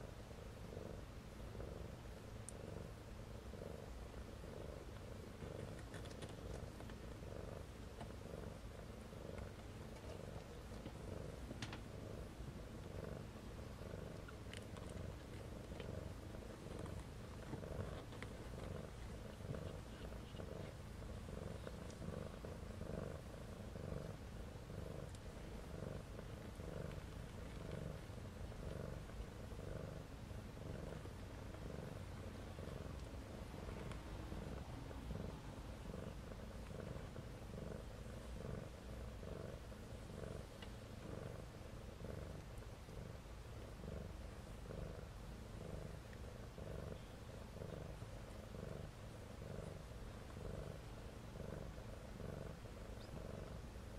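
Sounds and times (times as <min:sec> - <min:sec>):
cat purring: 0:00.0 - 0:53.9
faint clicks: 0:40.6 - 0:40.8.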